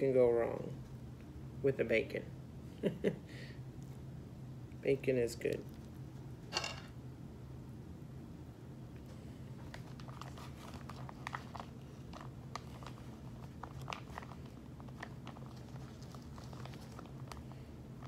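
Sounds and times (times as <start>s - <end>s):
steady low hum: 0.0s - 18.0s
plastic bag crinkling: 9.6s - 18.0s.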